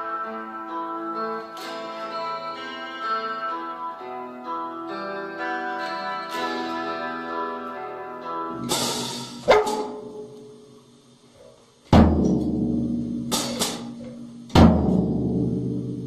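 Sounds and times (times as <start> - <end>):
drum hits booming: 11.9 - 16.0.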